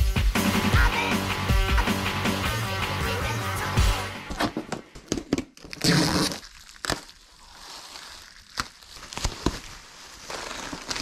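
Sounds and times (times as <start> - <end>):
bubble wrap crinkling: 5.3 - 11.0
packing tape ripping: 5.5 - 11.0.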